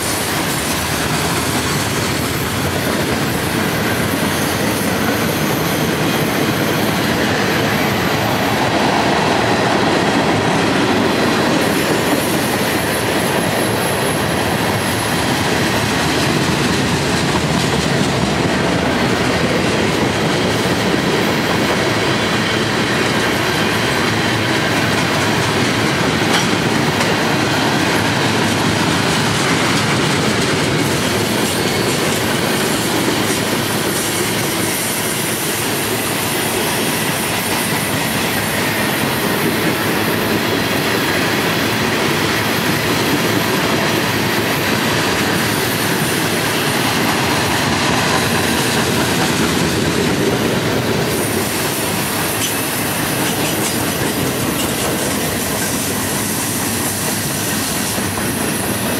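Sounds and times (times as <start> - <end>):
steel train wheels rumbling on rails: 0.0 - 58.9.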